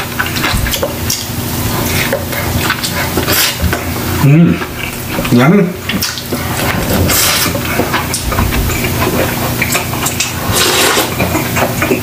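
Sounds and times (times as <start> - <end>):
wet chewing: 0.0 - 12.0
slurping soup: 6.1 - 12.0.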